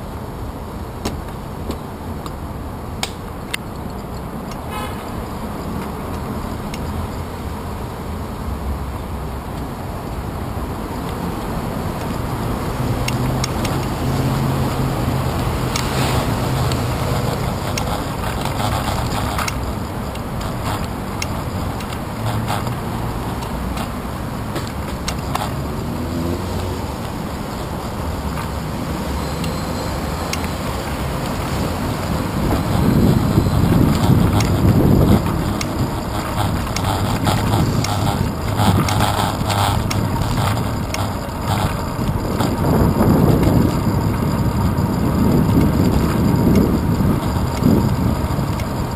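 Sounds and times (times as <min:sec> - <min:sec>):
bicycle road rumble: 0:00.0 - 0:48.9
motor vehicles running: 0:00.0 - 0:48.9
wind rushing over microphone: 0:09.2 - 0:29.2, 0:29.9 - 0:48.9.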